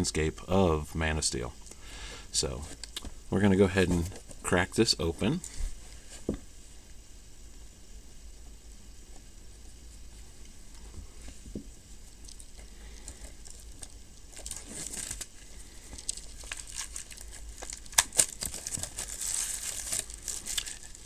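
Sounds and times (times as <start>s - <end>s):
plastic wrap crinkling and tearing: 12.1s - 21.0s.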